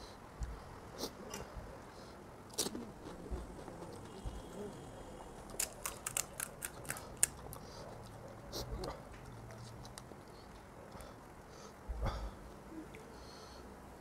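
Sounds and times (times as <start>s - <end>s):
crisp shells crackling and crunching: 5.4s - 7.6s.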